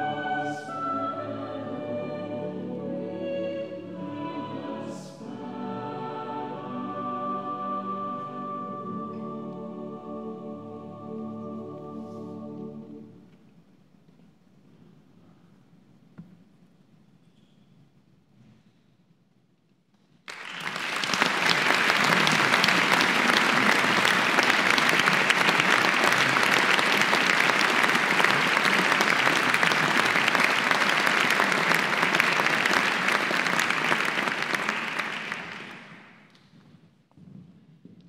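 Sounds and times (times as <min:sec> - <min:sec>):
audience applauding: 0:20.3 - 0:36.3.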